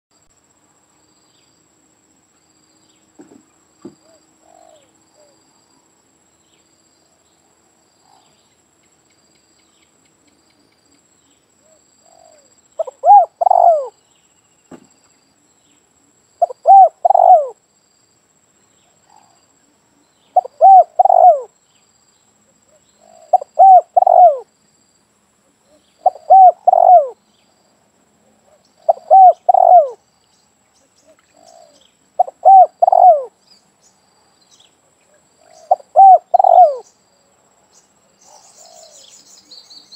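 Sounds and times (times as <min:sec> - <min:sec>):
dove cooing: 0:04.0 - 0:05.4, 0:11.6 - 0:14.0, 0:16.4 - 0:17.6, 0:20.3 - 0:21.5, 0:23.0 - 0:24.5, 0:25.7 - 0:27.2, 0:28.4 - 0:30.0, 0:31.0 - 0:33.4, 0:35.4 - 0:36.9.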